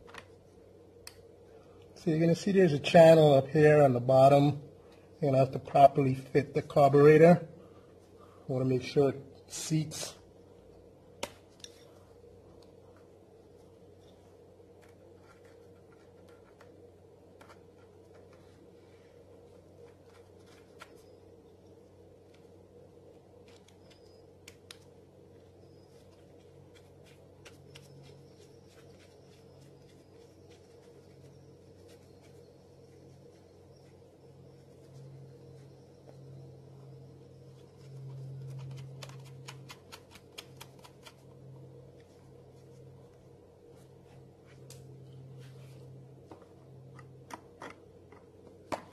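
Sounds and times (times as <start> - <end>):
steady low hum: 0.0 - 48.9
gloved hands rubbing: 25.5 - 36.5.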